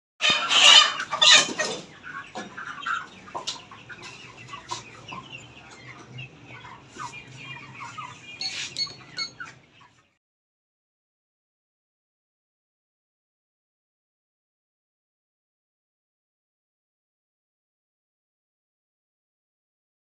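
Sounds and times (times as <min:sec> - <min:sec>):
chickens squawking loudly: 0:00.2 - 0:10.1
chickens clucking and calling: 0:00.2 - 0:10.2.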